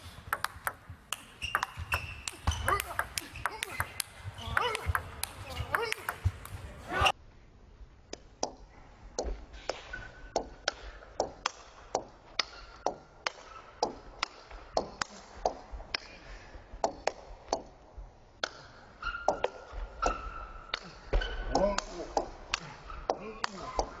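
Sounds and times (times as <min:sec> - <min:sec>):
table tennis ball clicking: 0:00.2 - 0:06.6.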